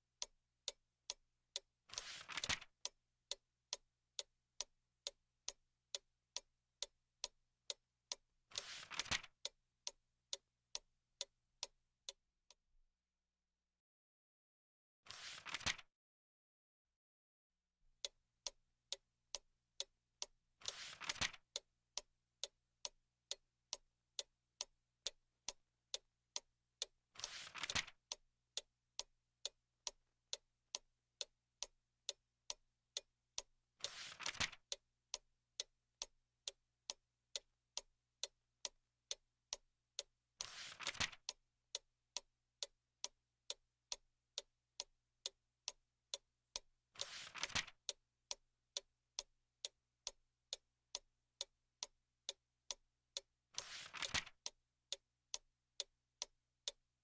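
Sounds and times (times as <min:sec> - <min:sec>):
clock ticking: 0:00.0 - 0:12.2, 0:18.0 - 0:56.8
book page turning: 0:02.0 - 0:02.6, 0:08.6 - 0:09.2, 0:15.1 - 0:15.8, 0:20.7 - 0:21.4, 0:27.2 - 0:27.9, 0:33.9 - 0:34.6, 0:40.4 - 0:41.2, 0:47.0 - 0:47.7, 0:53.6 - 0:54.3.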